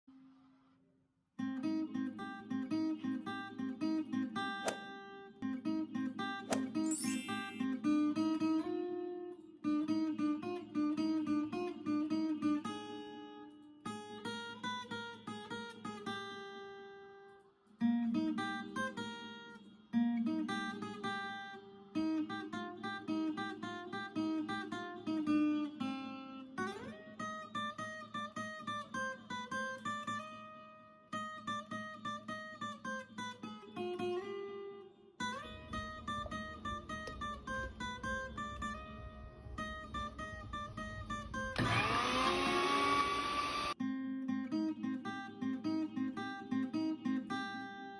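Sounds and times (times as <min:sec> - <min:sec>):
acoustic guitar music: 0:01.4 - 0:41.6, 0:43.8 - 0:47.9.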